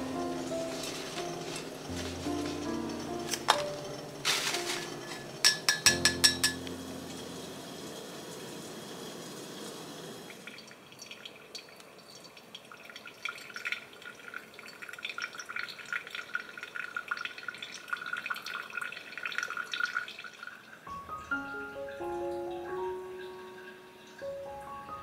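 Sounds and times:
steady hiss: 0:00.0 - 0:10.6
water pouring onto coffee grounds: 0:07.1 - 0:20.8.

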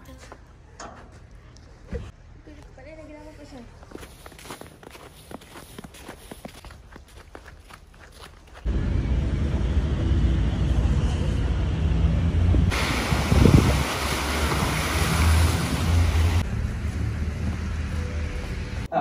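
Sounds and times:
wind buffeting the microphone: 0:12.5 - 0:14.8.

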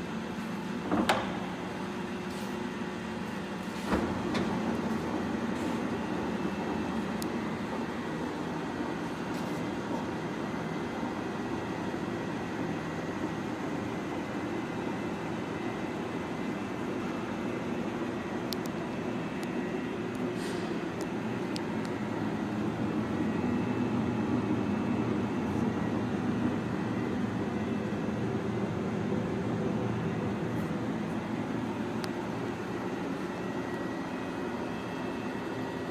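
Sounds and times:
lathe running rumble: 0:00.0 - 0:35.9.

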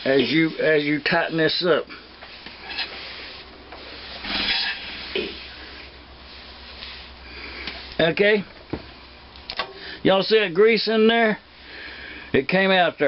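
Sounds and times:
engine flywheel rubbing and scraping: 0:02.6 - 0:05.6.

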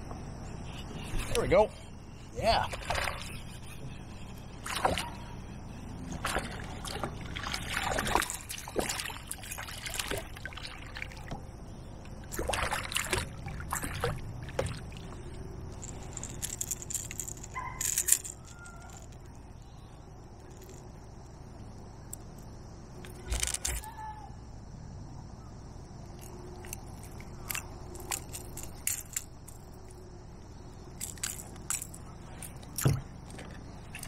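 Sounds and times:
fish splashing in water: 0:02.7 - 0:03.3, 0:04.6 - 0:05.2, 0:06.1 - 0:11.3, 0:12.2 - 0:15.3.

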